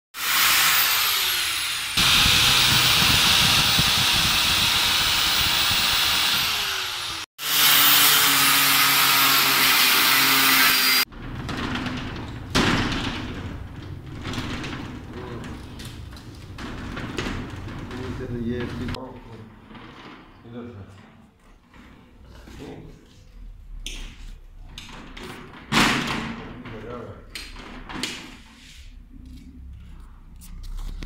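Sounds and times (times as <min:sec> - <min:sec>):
angle grinder cutting metal: 0:00.2 - 0:11.1.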